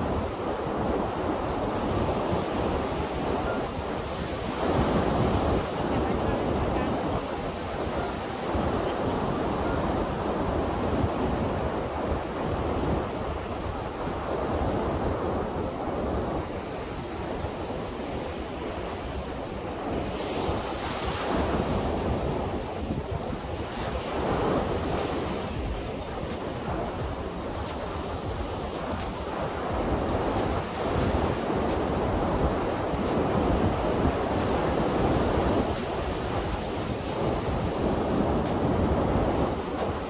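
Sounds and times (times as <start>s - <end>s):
waves breaking on beach: 0.0s - 40.0s
wind buffeting microphone: 0.0s - 40.0s.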